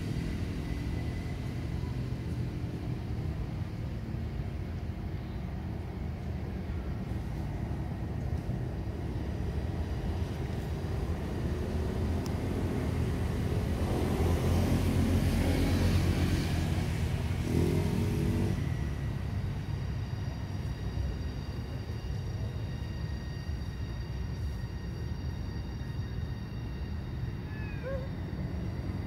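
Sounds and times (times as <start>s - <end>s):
vehicle engine passing by: 11.6s - 19.8s.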